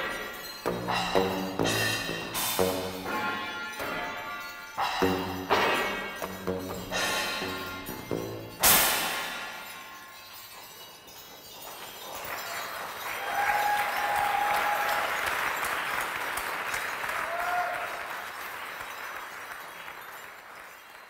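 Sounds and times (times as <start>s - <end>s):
audience applauding: 11.9s - 21.0s
high held cheers: 12.3s - 18.6s.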